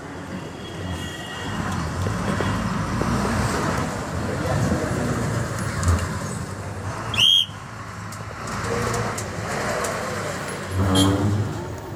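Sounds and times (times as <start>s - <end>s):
vehicle and road noise: 0.0s - 11.9s
whistle blown: 7.1s - 7.6s.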